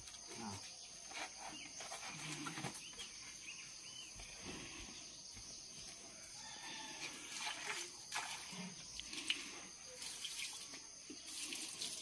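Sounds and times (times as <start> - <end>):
faint bird chirps: 8.6 - 11.8.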